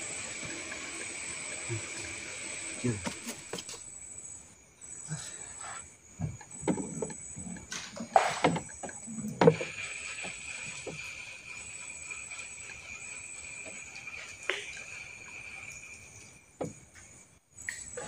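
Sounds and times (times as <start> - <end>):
insects chirring: 0.0 - 18.0
wooden boat knocking: 16.6 - 16.9.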